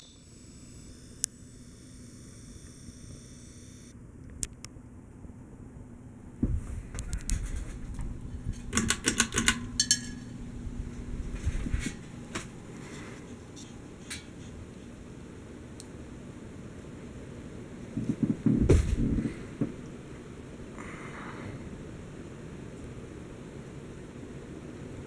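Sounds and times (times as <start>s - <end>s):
ceiling fan motor hum: 0.0s - 25.0s
knocks and rumble: 6.4s - 8.8s, 17.9s - 19.8s
pull chain rattling clicks: 8.5s - 10.3s.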